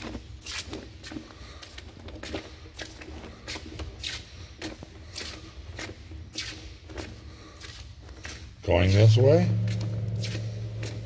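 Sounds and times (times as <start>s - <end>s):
footsteps scuffing on concrete: 0.0s - 11.0s
low steady rumble: 8.7s - 11.0s.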